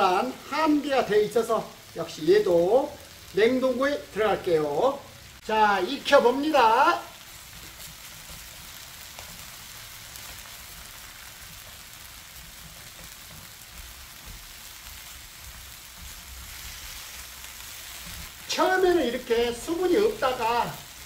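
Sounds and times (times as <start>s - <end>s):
food sizzling in a pan: 0.0s - 21.0s
wooden spatula ticks: 10.2s - 16.6s.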